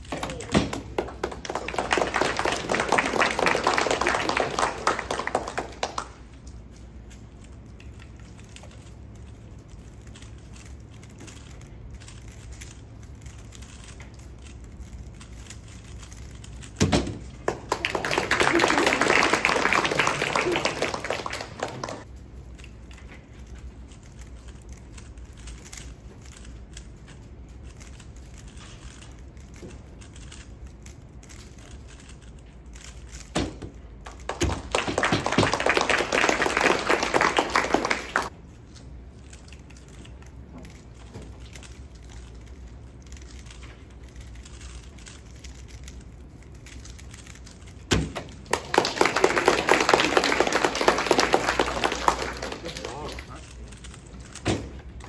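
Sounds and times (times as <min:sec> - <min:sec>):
applause: 0:00.8 - 0:06.2, 0:17.5 - 0:22.0, 0:34.2 - 0:38.3, 0:48.4 - 0:53.3.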